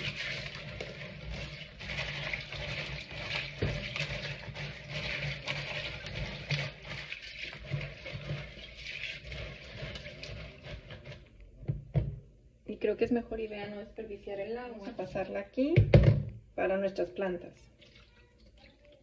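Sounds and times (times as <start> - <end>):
beans rattling in rinse water: 0.0 - 11.4, 17.7 - 19.0.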